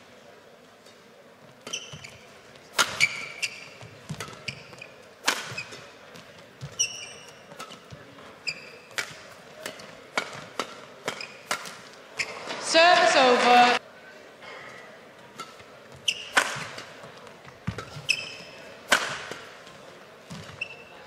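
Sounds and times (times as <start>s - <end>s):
shoes squeaking on court: 1.4s - 12.6s, 15.2s - 21.0s
racket striking shuttlecock: 2.7s - 8.0s, 8.8s - 11.9s, 15.3s - 16.9s, 17.6s - 19.6s.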